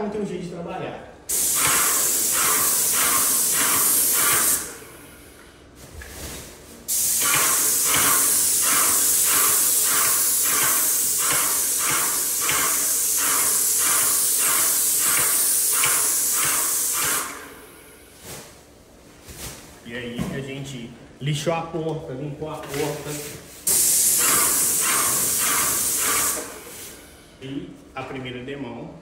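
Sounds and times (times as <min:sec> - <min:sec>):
paint sprayer hissing: 0:01.3 - 0:05.4, 0:06.8 - 0:18.0, 0:22.7 - 0:27.2.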